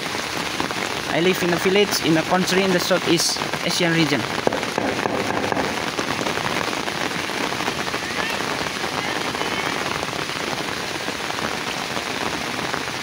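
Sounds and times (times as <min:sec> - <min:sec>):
heavy rain on water: 0:00.0 - 0:13.0.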